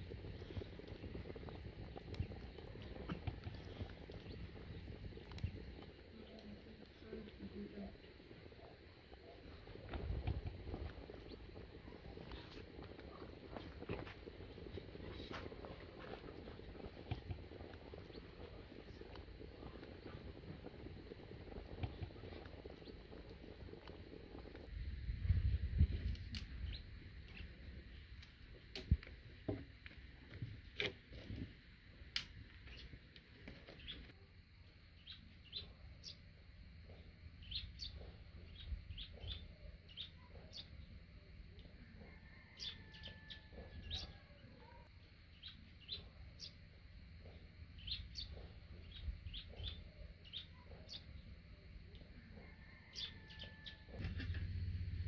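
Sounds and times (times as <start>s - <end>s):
small birds chirping: 0.0s - 24.7s, 25.8s - 28.7s, 32.6s - 34.2s, 34.9s - 54.0s
low rumble: 0.0s - 29.4s, 54.0s - 55.0s.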